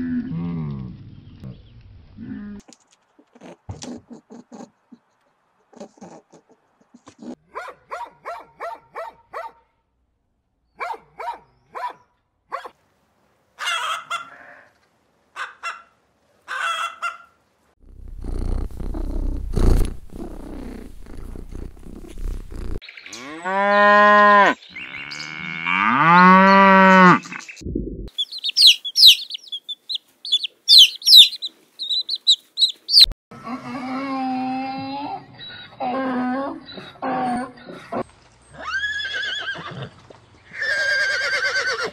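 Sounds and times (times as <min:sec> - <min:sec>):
cat purring: 0:17.8 - 0:22.8
high chirping: 0:27.3 - 0:33.2
animal calls rising and falling: 0:28.1 - 0:33.1.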